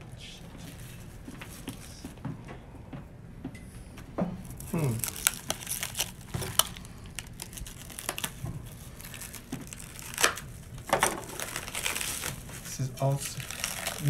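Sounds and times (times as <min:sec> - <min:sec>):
plastic wrap crinkling and tearing: 0:04.4 - 0:14.0.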